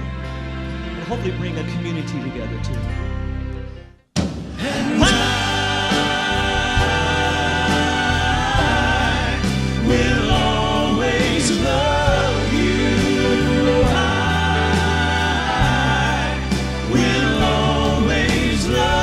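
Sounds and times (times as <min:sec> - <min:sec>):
bass guitar: 0:00.0 - 0:04.1, 0:04.7 - 0:19.0
piano: 0:00.0 - 0:19.0
drums: 0:04.1 - 0:19.0
male vocal quartet singing: 0:04.6 - 0:19.0.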